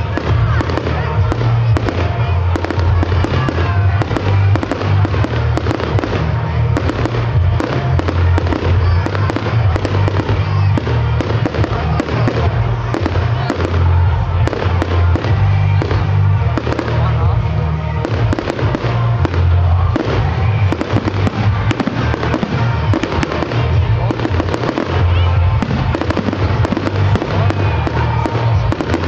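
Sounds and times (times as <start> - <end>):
fireworks bangs and crackles: 0.0 - 29.0.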